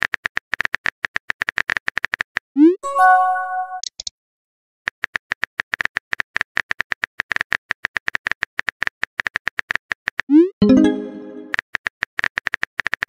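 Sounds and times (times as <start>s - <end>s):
phone keyboard typing clicks: 3.8s - 4.1s.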